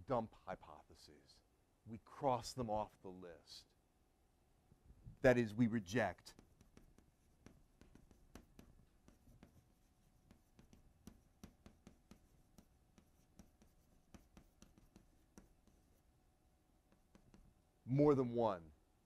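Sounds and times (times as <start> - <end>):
pens writing on paper: 6.2 - 16.1, 16.9 - 17.5.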